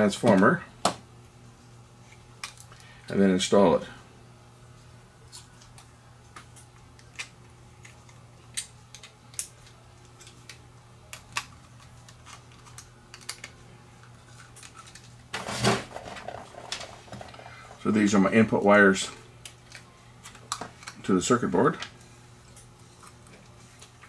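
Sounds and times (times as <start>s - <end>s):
faint low hum: 0.0s - 24.0s
small parts clicking and tapping: 5.6s - 13.6s.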